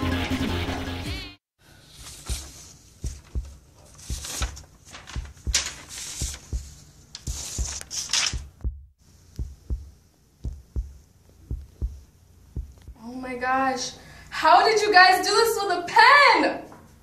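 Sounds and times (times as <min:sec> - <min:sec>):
paper sheets rustling: 0:01.7 - 0:08.6
heartbeat thumps: 0:02.1 - 0:13.0.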